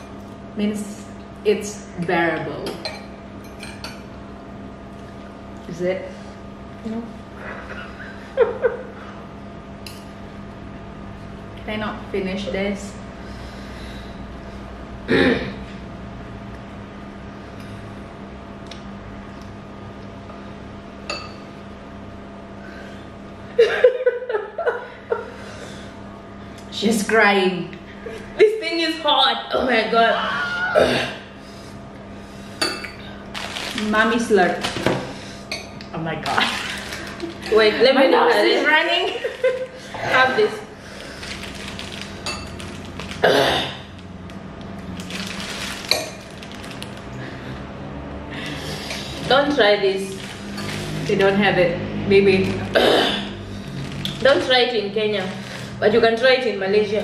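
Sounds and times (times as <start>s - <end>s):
woman laughing: 7.4s - 9.1s, 23.6s - 25.3s, 30.0s - 30.9s, 36.4s - 40.6s
plastic packet crinkling: 33.3s - 34.9s, 36.4s - 37.5s, 39.1s - 39.8s, 41.0s - 47.2s, 50.0s - 51.4s, 53.8s - 54.5s.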